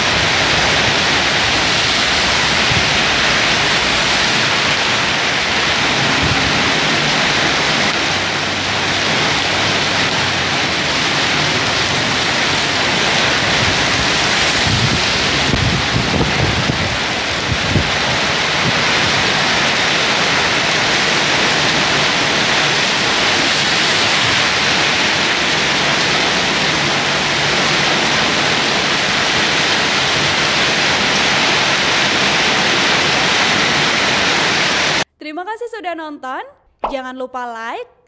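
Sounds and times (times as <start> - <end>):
heavy rain on road: 0.0 - 35.1.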